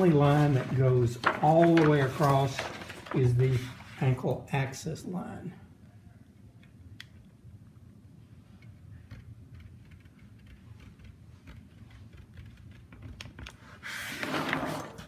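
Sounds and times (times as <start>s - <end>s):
paper rustling: 0.0s - 4.2s.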